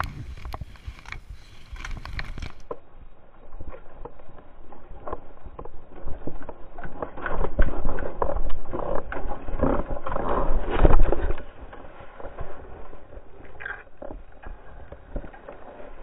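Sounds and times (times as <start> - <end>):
wind on microphone: 0.0 - 13.6
mountain bike rattling over dirt trail: 0.0 - 16.0.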